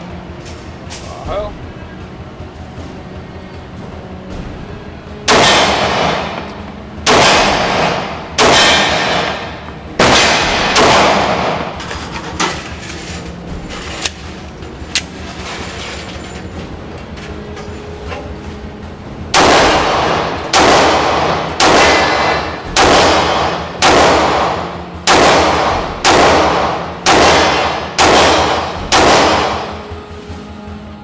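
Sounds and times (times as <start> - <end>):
pistol shots echoing indoors: 5.2 - 11.9, 19.3 - 30.0.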